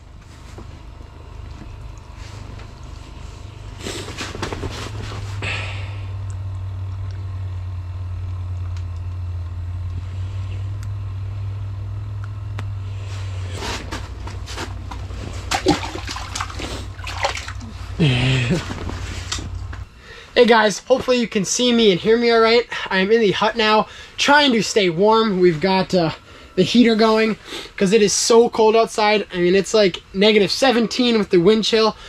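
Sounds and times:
steady low rumble: 0.0 - 31.7
jacket sleeves rustling: 0.1 - 5.6, 12.9 - 19.9.

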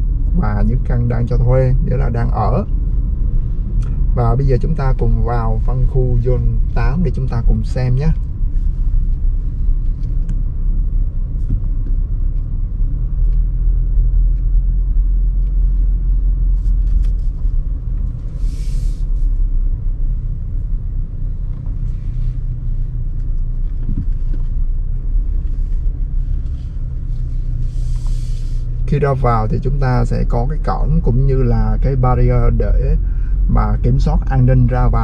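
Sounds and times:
car engine and road rumble: 0.0 - 35.0
brief hiss: 18.3 - 19.3, 27.6 - 28.8.

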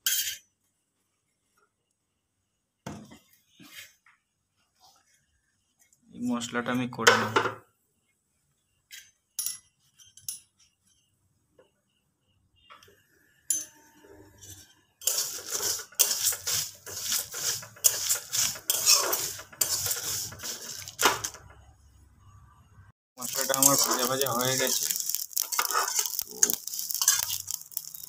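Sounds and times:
spatula stirring seeds in metal pan: 14.4 - 21.4, 23.2 - 28.0.

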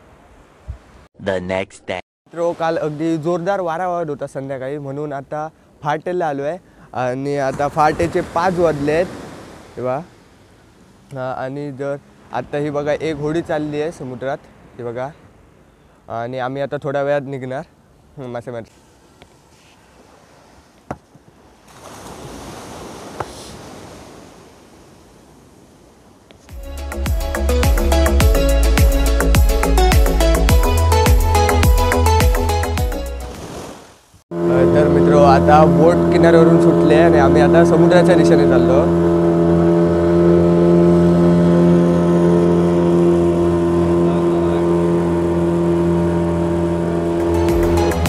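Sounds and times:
sea surf washing up beach: 2.3 - 4.0, 5.8 - 15.2, 21.3 - 26.5, 33.2 - 48.0
boat engine droning: 7.5 - 16.0, 34.3 - 48.0.

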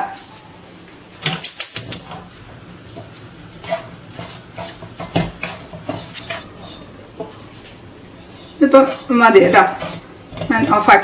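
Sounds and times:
spoon scraping flour in metal pan: 2.9 - 11.0.

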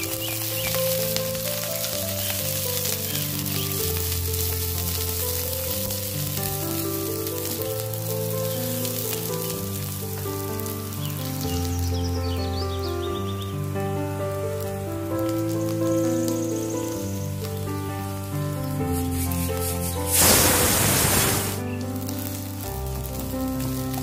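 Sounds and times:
vegetables sizzling in a wok: 0.0 - 12.7, 15.3 - 24.0
background music: 0.0 - 24.0.

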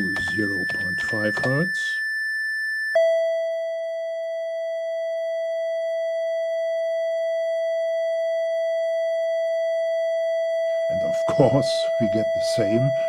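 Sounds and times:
steady synthesizer tone: 10.8 - 13.0.

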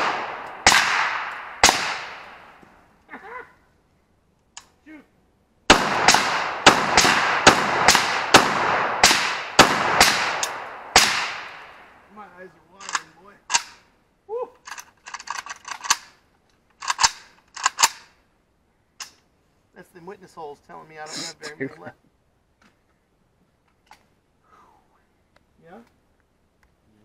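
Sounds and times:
loud rifle shots echoing: 0.0 - 2.6, 5.7 - 12.0
suppressed rifle shots: 0.0 - 2.6, 5.7 - 11.9.

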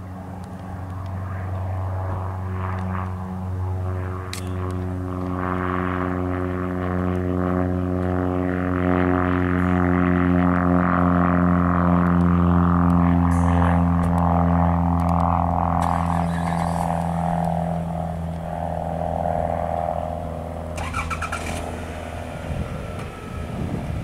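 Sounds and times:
propeller plane engine droning: 0.0 - 24.0.

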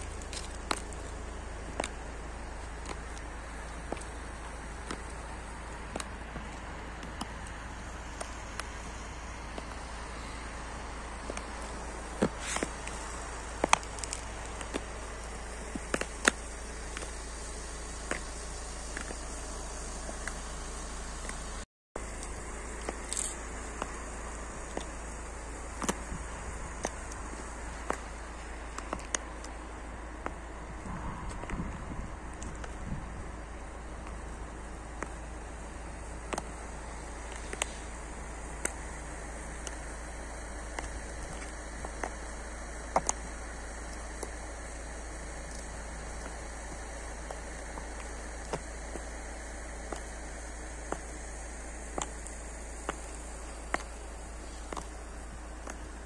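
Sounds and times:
heels clicking on asphalt: 0.0 - 56.0
steady background hiss: 0.0 - 56.0.

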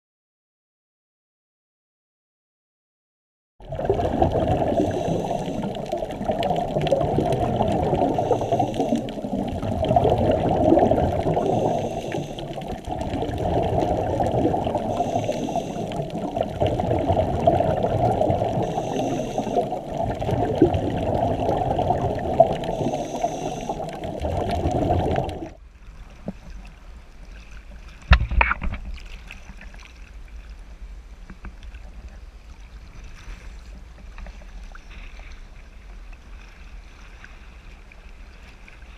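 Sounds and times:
exhaled bubbles underwater: 3.6 - 25.6
water at the surface: 3.6 - 38.9
scuba regulator breathing: 4.6 - 6.3, 7.6 - 13.2, 13.9 - 16.6, 17.4 - 25.5.

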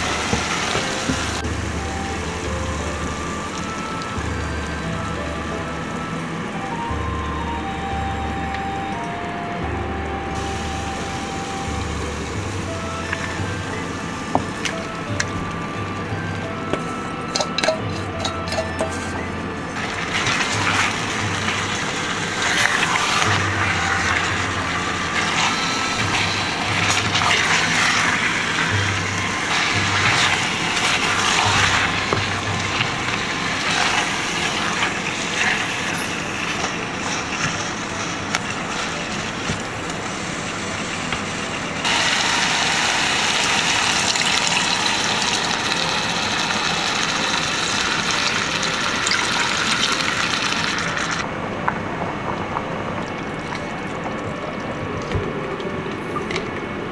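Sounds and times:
meat sizzling in a pot: 0.0 - 6.2, 10.4 - 15.3, 19.8 - 51.2
water pouring into a pot: 19.8 - 39.4, 41.8 - 51.2.

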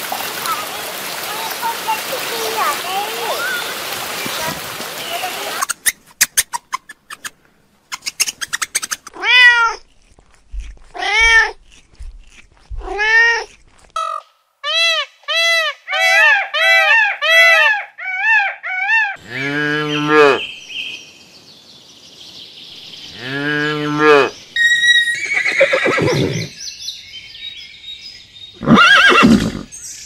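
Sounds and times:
cat meowing: 9.1 - 9.8, 11.0 - 11.6, 12.8 - 13.5.

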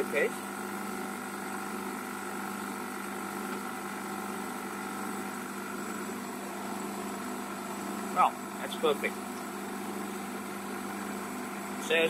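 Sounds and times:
machine humming: 0.0 - 12.0.

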